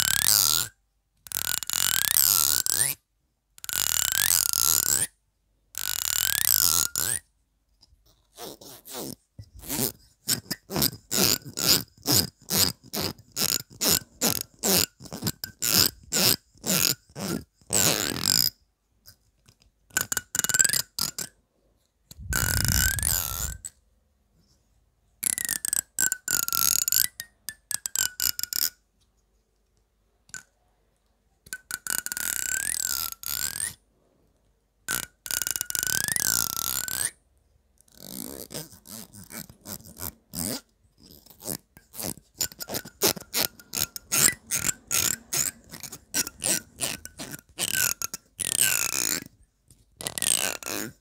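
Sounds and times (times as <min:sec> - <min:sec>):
fingernails strumming comb teeth: 0:41.4 - 0:49.3.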